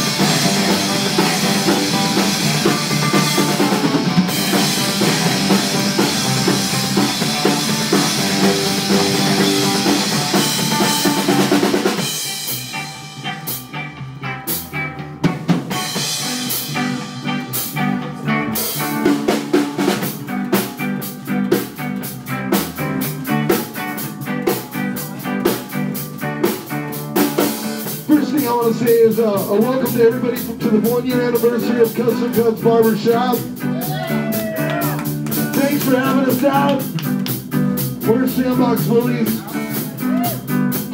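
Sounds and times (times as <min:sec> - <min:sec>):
drum hits: 0:00.0 - 0:12.8, 0:33.9 - 0:37.8
rockabilly band playing: 0:00.0 - 0:40.9.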